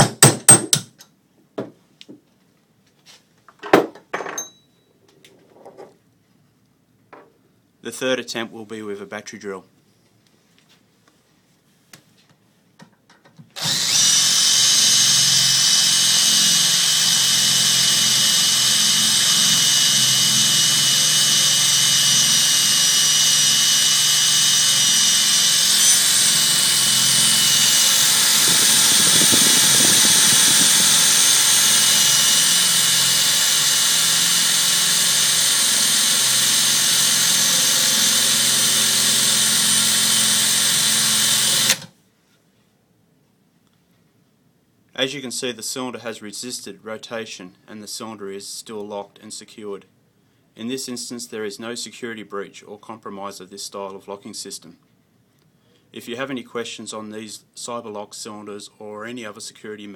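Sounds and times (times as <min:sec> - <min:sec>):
cordless drill grinding into metal: 0:13.6 - 0:41.9.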